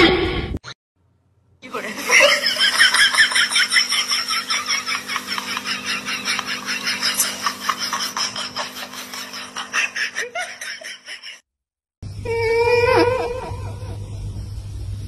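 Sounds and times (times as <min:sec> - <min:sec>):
rapid rhythmic laughter: 0:01.7 - 0:11.5
wavering vocal call: 0:12.2 - 0:14.1
steady low hum: 0:13.2 - 0:15.0.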